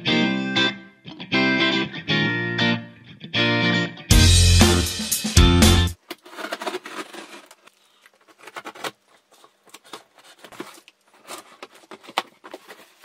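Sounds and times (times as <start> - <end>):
box cutter slicing tape: 6.0 - 7.6
cardboard being handled: 6.0 - 13.0.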